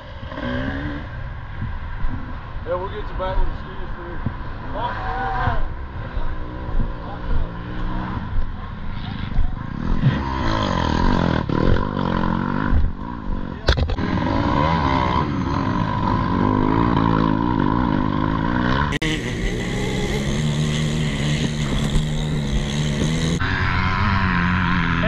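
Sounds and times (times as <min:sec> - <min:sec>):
atv engine running: 0:06.0 - 0:25.0.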